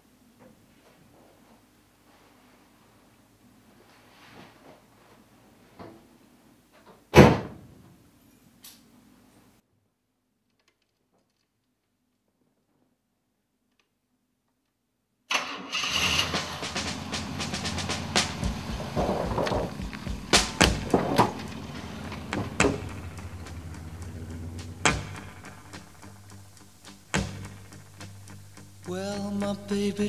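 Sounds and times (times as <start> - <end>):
car engine starting and running: 15.3 - 30.0
sharp knocks: 16.3 - 26.2, 27.1 - 28.2.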